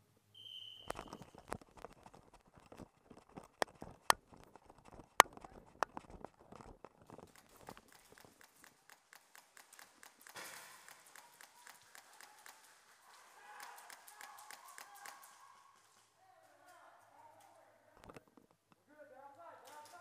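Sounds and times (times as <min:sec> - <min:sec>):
sharp clicks: 0:00.8 - 0:12.8.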